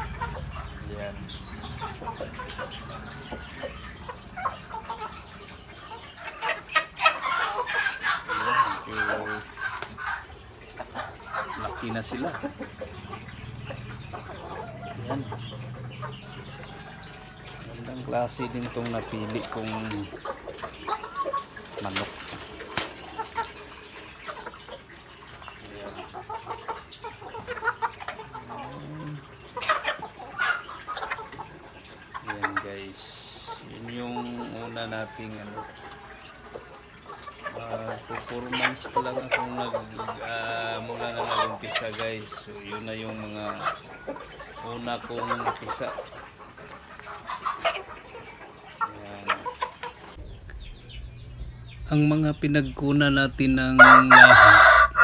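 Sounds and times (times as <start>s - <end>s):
chickens clucking: 0.0s - 55.0s.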